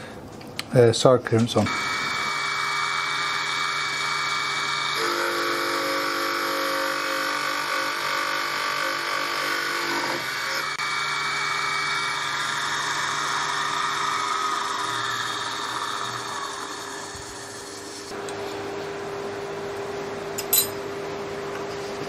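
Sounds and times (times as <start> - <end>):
grinder whine: 1.6 - 20.7
tool bit grinding on wheel: 1.7 - 18.1.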